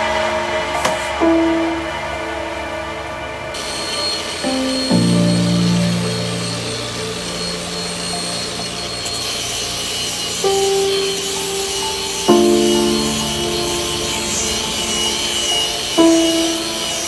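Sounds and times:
background music of held notes: 0.0 - 17.0
power tool sanding cardboard: 3.6 - 17.0.

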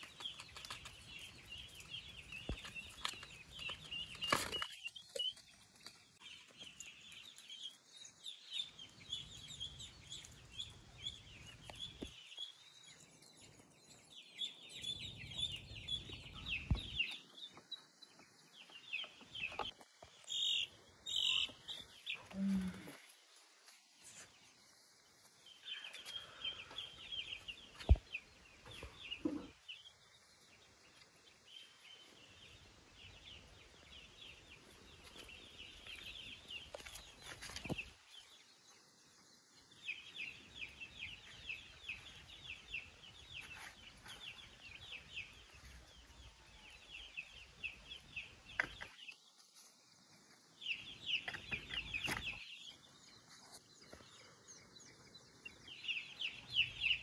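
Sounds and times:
chick peeping: 18.6 - 23.0.

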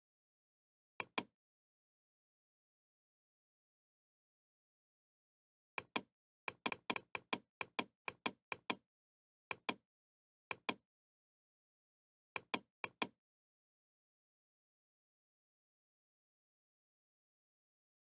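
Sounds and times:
computer mouse button clicking: 5.8 - 8.8, 12.4 - 13.2.

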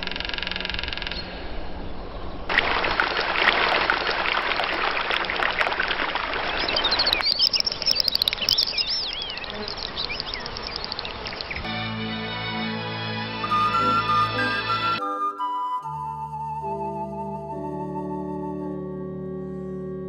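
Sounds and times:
birdsong with whistled phrases: 6.4 - 11.7, 13.4 - 19.9
insect chirring: 7.2 - 11.6.

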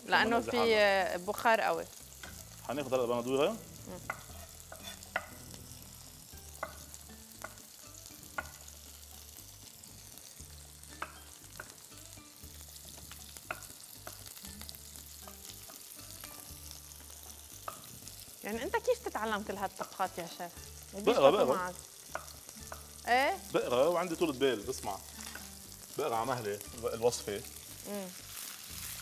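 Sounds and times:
vegetables sizzling in oil: 0.0 - 29.0
knife tapping on wooden board: 6.5 - 7.6, 8.3 - 8.6, 11.0 - 11.8, 22.1 - 22.9.

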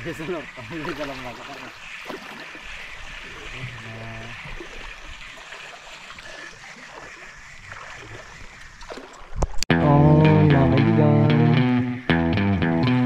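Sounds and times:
seawater lapping over rocks: 0.0 - 9.6.

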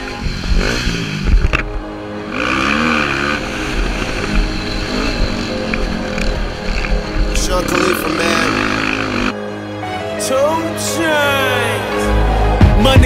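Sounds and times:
quad engine revving: 0.0 - 9.4.

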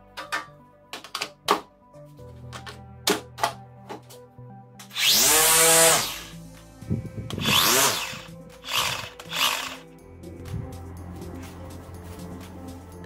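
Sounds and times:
background music: 0.0 - 13.0
string trimmer motor whining: 4.9 - 6.3, 7.3 - 9.8.

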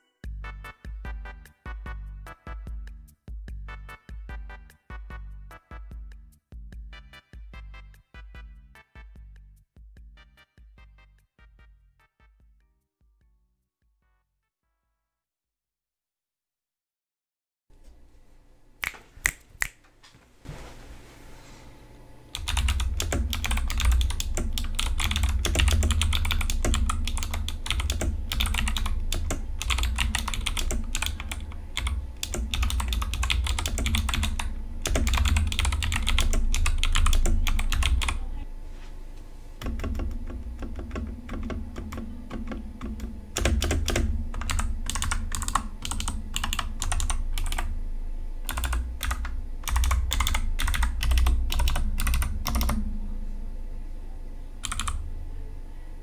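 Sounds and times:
mechanical keyboard typing: 22.3 - 38.2, 39.6 - 47.7, 48.4 - 52.8, 54.6 - 55.0.

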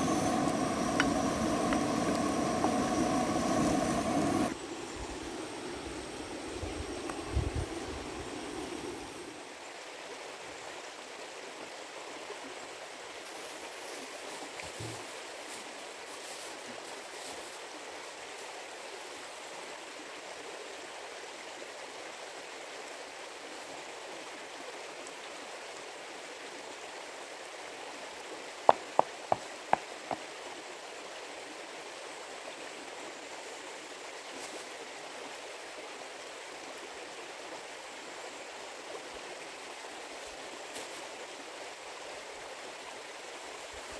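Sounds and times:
river water rushing: 0.0 - 6.5
sharp taps: 28.7 - 30.2.

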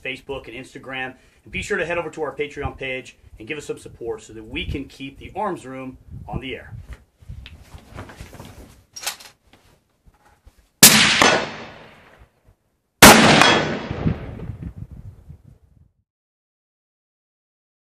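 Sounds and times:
rifle shots echoing: 10.8 - 12.2, 13.0 - 14.4.

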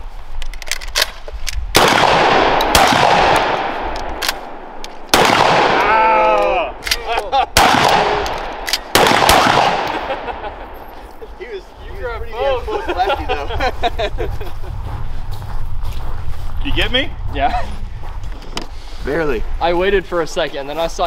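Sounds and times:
shells loaded by hand: 0.3 - 2.0, 3.3 - 5.2, 6.8 - 10.1
shotgun blasts: 1.7 - 6.2, 6.9 - 10.4
person shouting: 5.8 - 6.8.

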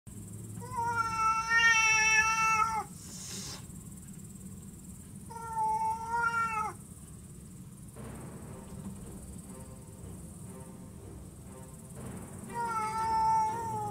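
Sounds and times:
faint music: 0.1 - 13.9
cat yowling: 0.6 - 3.0, 5.3 - 6.8, 12.5 - 13.9
cat hissing: 0.6 - 3.8.

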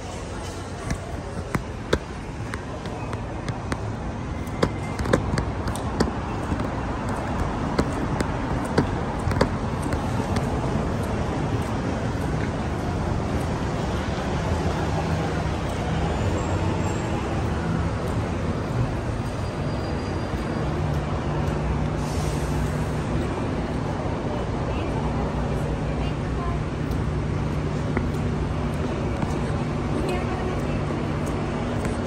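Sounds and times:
low rumble of road traffic: 0.0 - 32.0
sharp clicks and knocks: 0.4 - 14.9, 26.8 - 32.0.

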